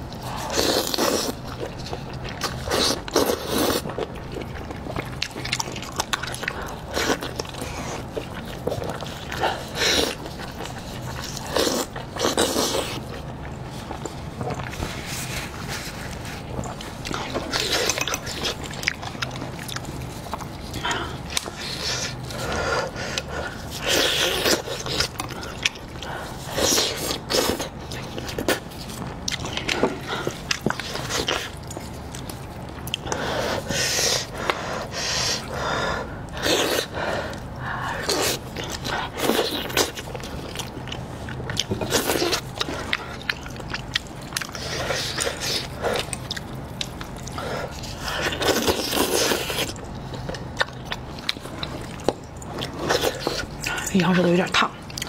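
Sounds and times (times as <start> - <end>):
wet chewing and smacking: 0.0 - 55.0
biting and tearing meat: 35.4 - 53.7.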